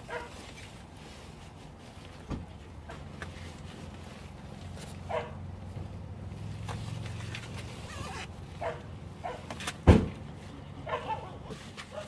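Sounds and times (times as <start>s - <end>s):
dogs barking and yelping: 0.0s - 0.4s, 5.1s - 5.4s, 7.9s - 9.6s, 10.8s - 12.0s.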